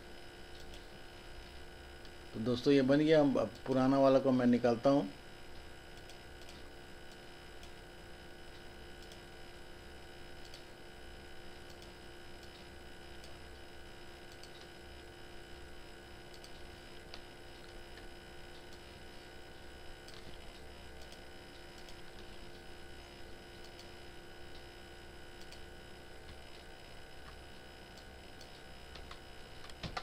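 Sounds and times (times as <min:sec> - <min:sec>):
electrical hum and whine: 0:00.0 - 0:30.0
computer mouse clicks: 0:00.5 - 0:00.8, 0:05.9 - 0:07.8, 0:08.5 - 0:09.3, 0:10.4 - 0:10.7, 0:11.6 - 0:13.4, 0:14.3 - 0:14.8, 0:16.3 - 0:17.3, 0:20.0 - 0:22.3, 0:23.6 - 0:24.0, 0:25.4 - 0:25.7, 0:27.3 - 0:30.0.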